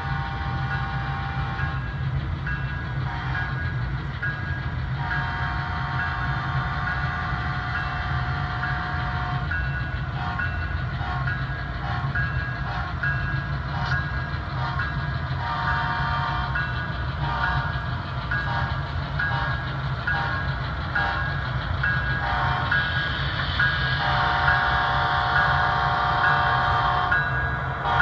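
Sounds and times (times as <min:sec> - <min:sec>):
diesel locomotive engine rumble: 0:00.0 - 0:28.0
locomotive air horn blasts: 0:05.0 - 0:09.5, 0:15.4 - 0:16.6, 0:22.2 - 0:22.8, 0:24.0 - 0:28.0.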